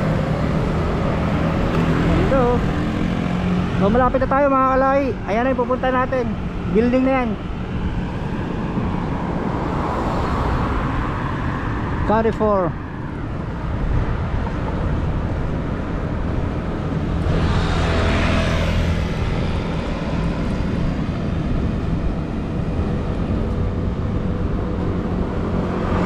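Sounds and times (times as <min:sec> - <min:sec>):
city road traffic: 0:00.0 - 0:26.0
wind rumble on microphone: 0:00.0 - 0:26.0
motor vehicle passing close: 0:17.0 - 0:21.7.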